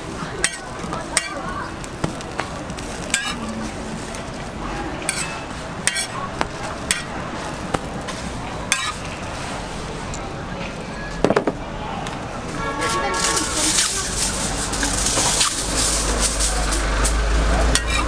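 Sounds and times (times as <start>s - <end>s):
omelette sizzling: 0.0s - 9.4s
metal spatula scraping griddle: 0.4s - 1.5s, 2.2s - 9.6s, 12.8s - 18.0s.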